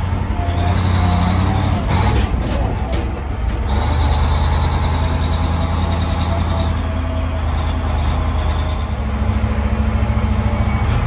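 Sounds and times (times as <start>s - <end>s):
lorry engine drone: 3.8s - 11.0s.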